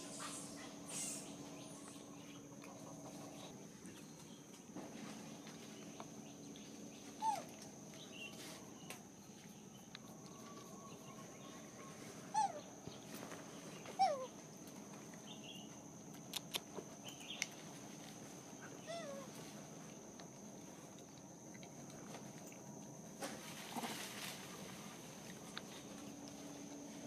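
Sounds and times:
faint outdoor hum: 0:00.0 - 0:27.0
macaque squeak calls: 0:12.3 - 0:12.6.

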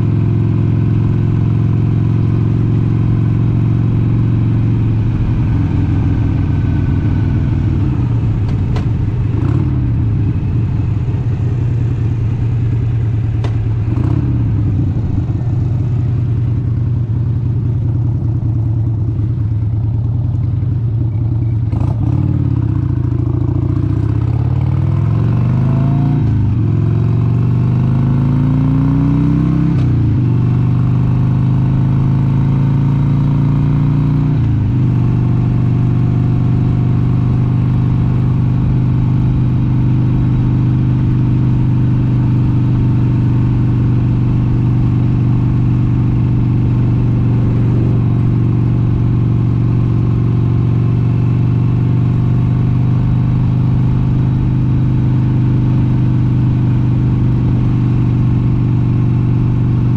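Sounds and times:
motorcycle engine shifting up: 0:01.4 - 0:22.2.

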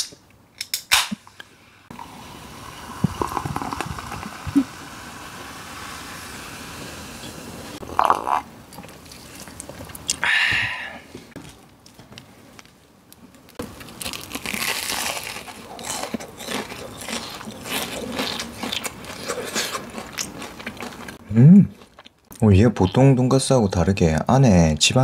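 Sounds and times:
crackly crunching while chewing: 0:11.4 - 0:21.2, 0:21.8 - 0:23.0
crisp crunch of biting: 0:13.6 - 0:21.2.

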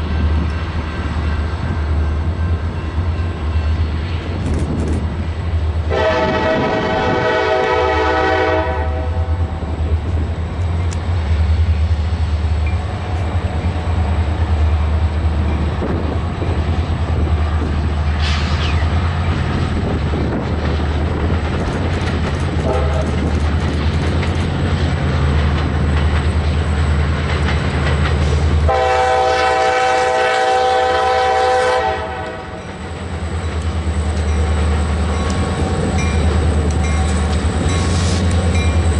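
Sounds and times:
locomotive engine rumble: 0:00.0 - 0:38.9
wheel noise on rails: 0:00.0 - 0:38.9
multi-note locomotive horn: 0:05.9 - 0:09.5, 0:22.6 - 0:23.2, 0:28.7 - 0:32.7.

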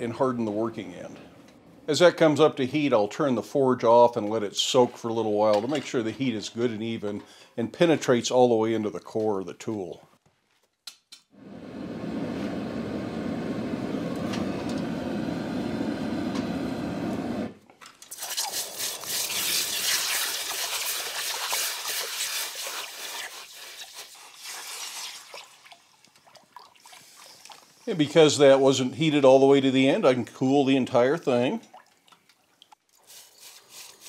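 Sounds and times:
gas forge burners rushing: 0:11.4 - 0:17.6
hot metal quenched in water hissing: 0:18.1 - 0:25.6.

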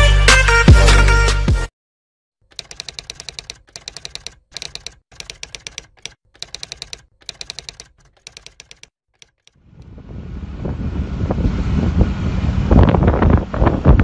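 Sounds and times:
rapid keyboard key clicks: 0:02.4 - 0:09.6.

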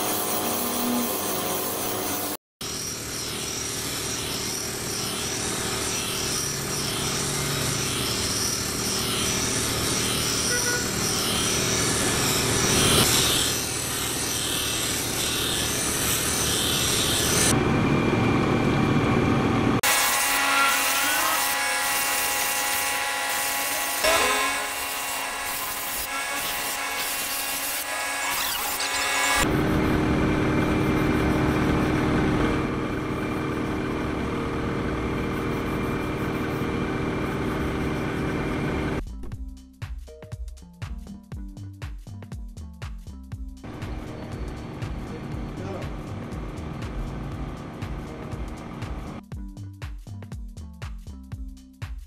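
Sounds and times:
steel rasping on grinding wheel: 0:00.0 - 0:17.5, 0:19.8 - 0:29.5, 0:30.6 - 0:39.0
bench grinder motor hum: 0:00.0 - 0:39.0.

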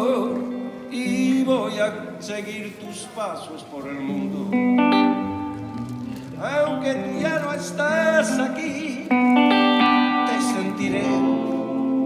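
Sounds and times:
electric guitar lead notes: 0:03.8 - 0:12.0.

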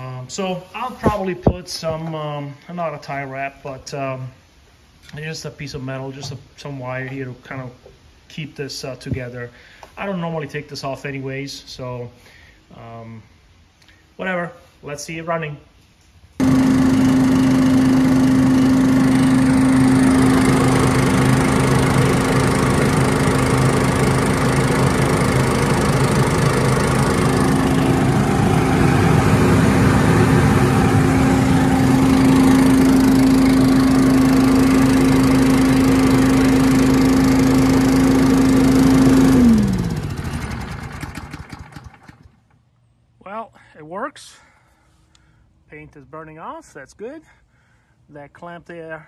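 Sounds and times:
small engine running: 0:16.4 - 0:42.5
engine winding down: 0:16.4 - 0:42.6.

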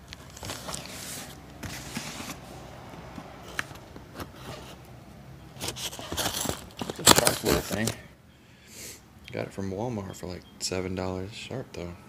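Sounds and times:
knife cutting cardboard: 0:00.6 - 0:02.6.

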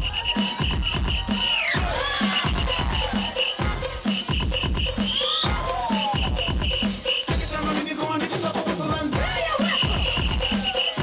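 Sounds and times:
dance music with drum beat: 0:00.0 - 0:11.0.

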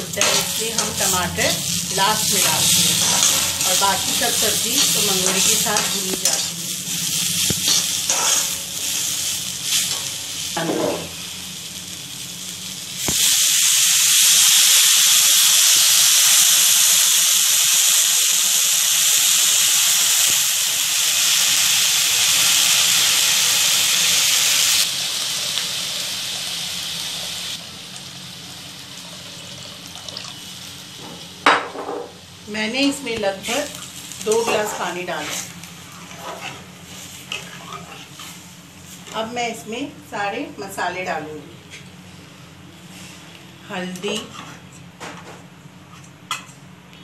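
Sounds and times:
water steaming hiss in hot pan: 0:00.0 - 0:31.0
vegetables sizzling in a pan: 0:00.0 - 0:41.2
spatula stirring and scraping: 0:01.8 - 0:06.5, 0:34.4 - 0:39.0.

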